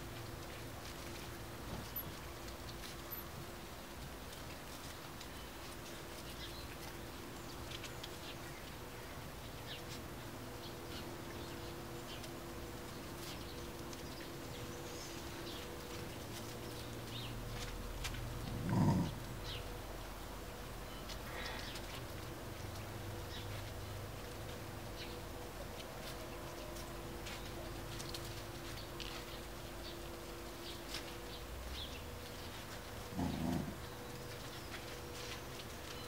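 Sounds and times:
faint steady hum: 0:00.0 - 0:36.0
small paws on paving and leaves: 0:00.0 - 0:36.0.

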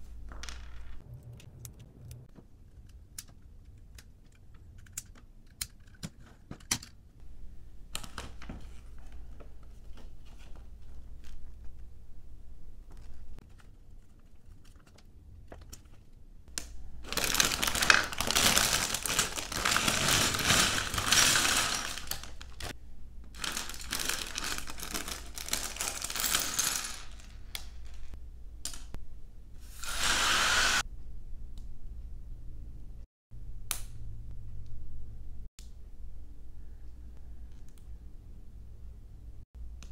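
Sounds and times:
plastic bag crinkling: 0:17.0 - 0:22.7, 0:23.4 - 0:27.3
plastic pieces clattering on table: 0:17.1 - 0:22.7, 0:23.4 - 0:28.1.

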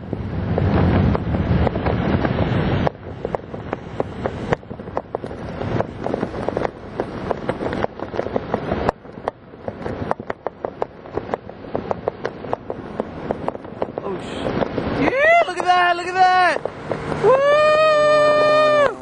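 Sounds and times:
wind buffeting microphone: 0:00.0 - 0:19.0
short crackling pops: 0:00.5 - 0:14.9.

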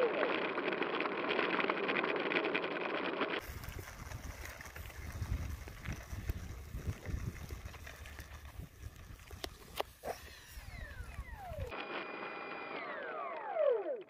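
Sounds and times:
camera whirring: 0:00.0 - 0:14.0
wind buffeting microphone: 0:03.4 - 0:11.7.

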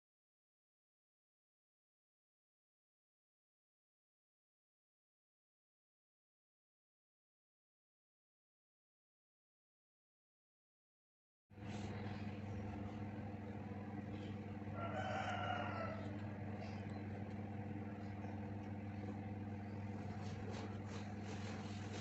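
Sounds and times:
low electrical hum: 0:11.6 - 0:22.0
rooster crowing: 0:14.1 - 0:17.1.

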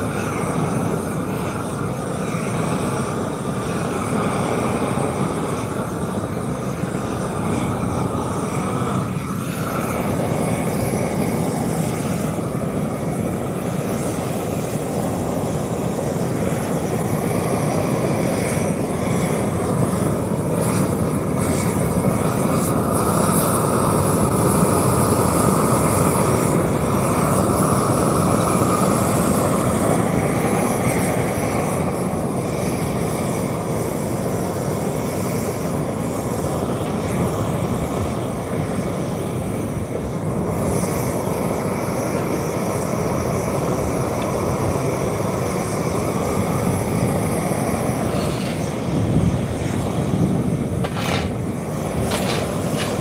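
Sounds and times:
machinery running: 0:50.0 - 0:53.0.

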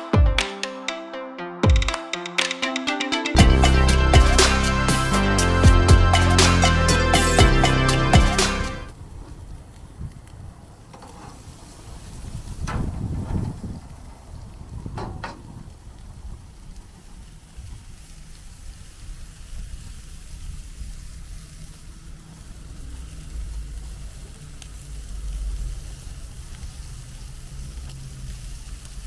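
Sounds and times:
low rumble: 0:03.4 - 0:09.1
steaks sizzling on a grill: 0:15.7 - 0:29.0.

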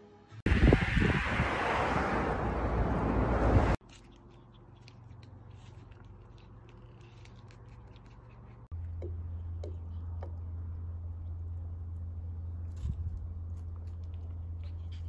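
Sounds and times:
wind noise: 0:00.4 - 0:03.8.

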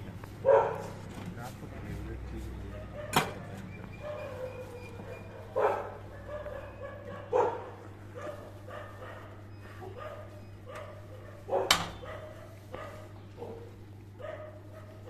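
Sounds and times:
dog whining and yelping: 0:02.9 - 0:07.5.

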